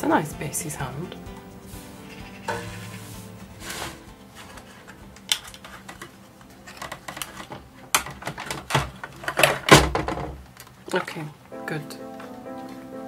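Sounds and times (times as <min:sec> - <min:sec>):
plastic case clicking and clattering: 0:04.5 - 0:11.2.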